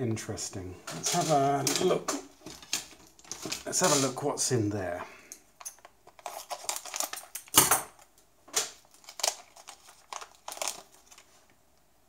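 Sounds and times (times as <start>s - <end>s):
plastic bag crinkling: 0.9s - 4.2s, 5.8s - 7.6s, 8.6s - 11.6s.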